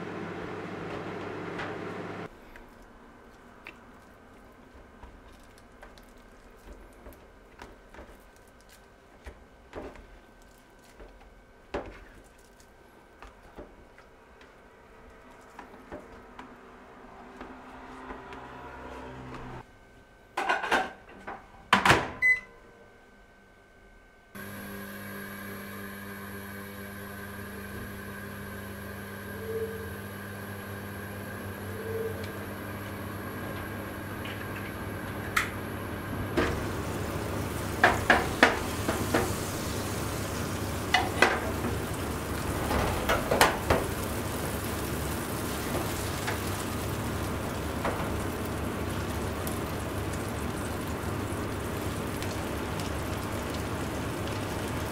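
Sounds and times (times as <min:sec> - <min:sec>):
microwave oven humming: 0:00.0 - 0:02.4, 0:12.7 - 0:54.9
butter sizzling in a frying pan: 0:36.4 - 0:54.9.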